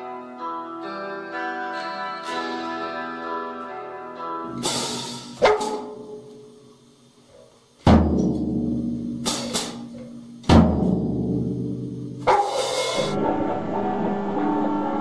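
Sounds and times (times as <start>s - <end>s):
drum hits ringing out: 4.6s - 6.2s, 7.8s - 13.4s.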